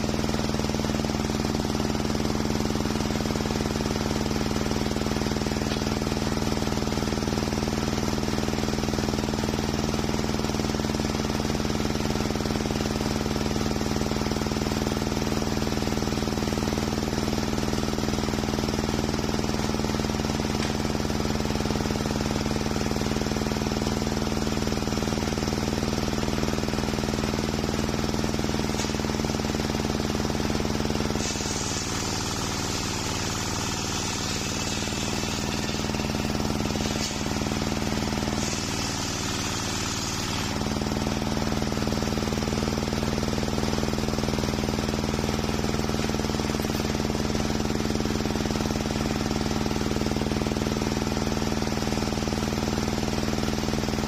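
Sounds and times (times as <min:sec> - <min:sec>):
circular saw humming: 0:27.6 - 0:40.6
saw blade cutting wood: 0:28.4 - 0:29.5, 0:31.1 - 0:40.7.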